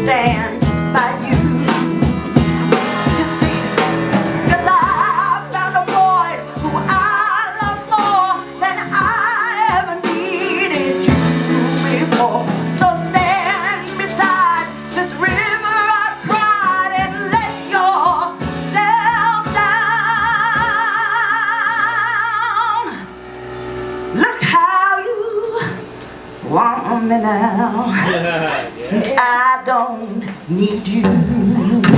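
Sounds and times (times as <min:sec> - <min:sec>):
woman singing soul ballad: 0:00.0 - 0:23.2, 0:24.0 - 0:28.2, 0:28.9 - 0:31.9
instrumental backing: 0:00.0 - 0:31.9.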